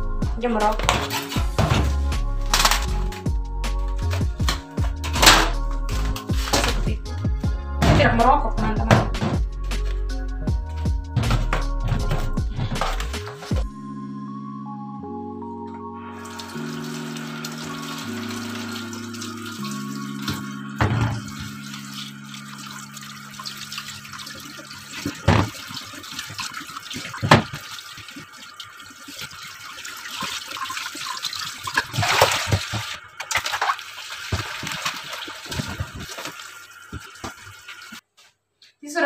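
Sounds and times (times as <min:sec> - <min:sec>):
tap water splashing in sink: 0:16.4 - 0:38.0.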